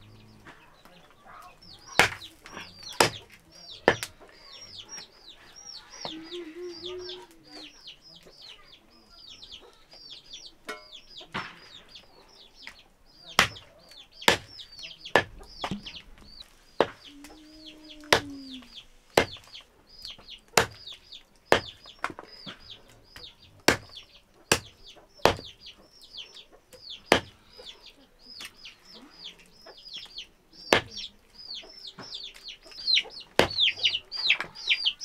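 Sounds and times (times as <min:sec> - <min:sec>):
small birds cheeping: 0:00.0 - 0:35.0
knife chopping on wooden block: 0:19.2 - 0:19.5, 0:20.6 - 0:20.8, 0:23.7 - 0:24.7, 0:25.3 - 0:25.5.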